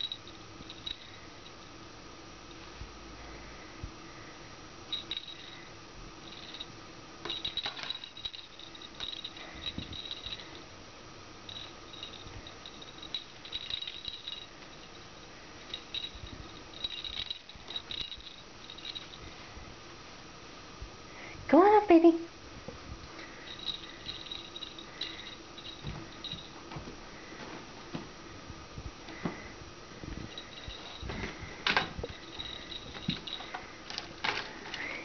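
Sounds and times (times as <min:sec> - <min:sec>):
feather toy jingling and clicking: 0:06.2 - 0:10.6, 0:11.5 - 0:15.1, 0:15.7 - 0:19.2, 0:23.4 - 0:26.6, 0:30.3 - 0:35.0.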